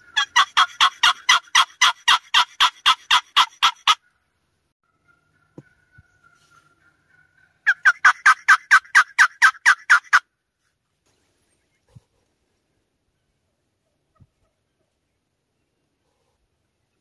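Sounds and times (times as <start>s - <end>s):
turkey yelping: 0.0s - 4.1s, 4.9s - 10.2s.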